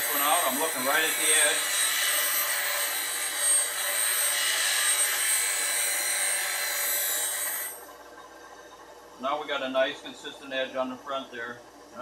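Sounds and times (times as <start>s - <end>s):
bench grinder grinding steel: 0.0s - 7.9s.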